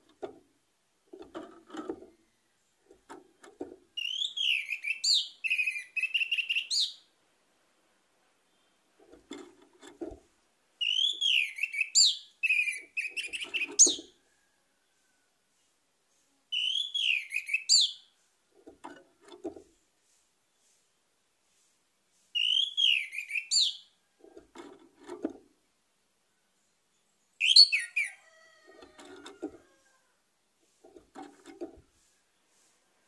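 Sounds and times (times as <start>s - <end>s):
low rattles of bird in cage: 0.0s - 4.0s, 9.0s - 10.4s, 18.4s - 19.9s, 30.6s - 32.9s.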